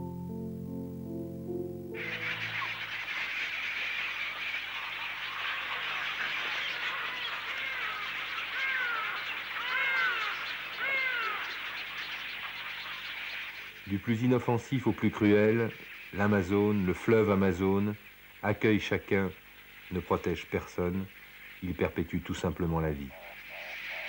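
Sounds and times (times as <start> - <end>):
single arched bird calls: 2.0 - 14.0, 23.1 - 24.0
flock of birds chattering: 2.0 - 24.0.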